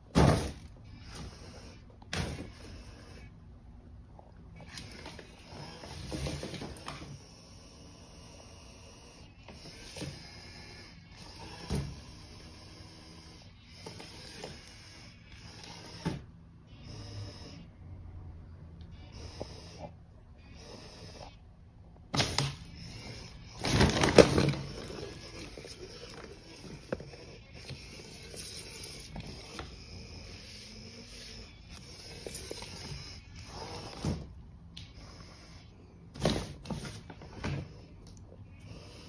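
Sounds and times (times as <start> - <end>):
plastic bag rustling and crinkling: 23.6 - 27.1.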